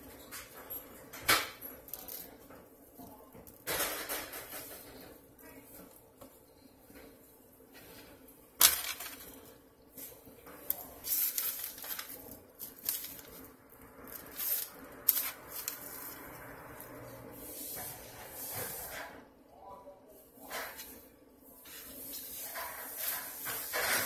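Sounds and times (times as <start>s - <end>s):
paper rustling: 8.6s - 16.3s.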